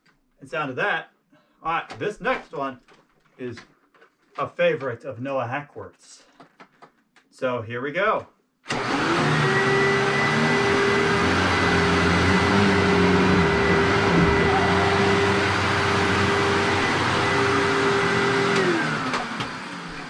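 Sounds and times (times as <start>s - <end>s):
vacuum cleaner motor whine: 8.7s - 20.0s.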